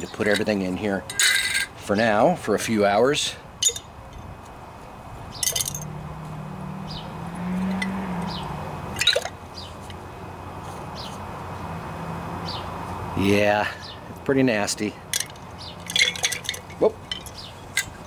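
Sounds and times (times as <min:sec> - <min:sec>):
metal parts clinking on glass jar: 0:00.1 - 0:01.7, 0:03.6 - 0:04.3, 0:05.4 - 0:05.9, 0:09.0 - 0:09.3, 0:15.1 - 0:18.0.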